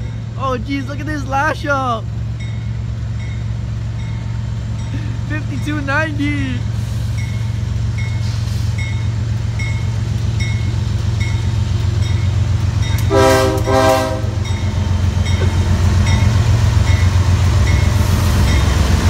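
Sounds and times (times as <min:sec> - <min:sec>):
locomotive engine rumble: 0:00.0 - 0:19.0
train air horn blasts: 0:13.0 - 0:14.5.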